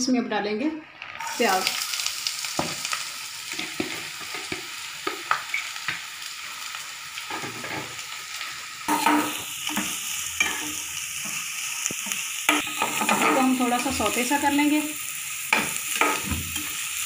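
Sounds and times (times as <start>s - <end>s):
onions sizzling in oil: 0.1s - 17.0s
spoon scraping a pan: 8.9s - 13.6s.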